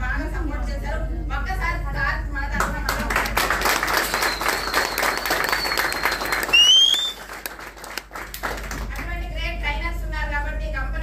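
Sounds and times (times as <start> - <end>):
small audience applauding: 2.9 - 9.1
short rising whistle: 4.1 - 7.3.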